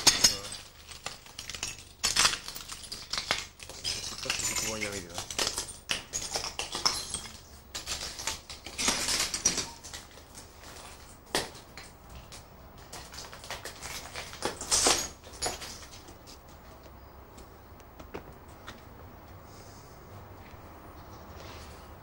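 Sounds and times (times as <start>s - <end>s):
footsteps crunching on broken glass: 0.0s - 16.8s.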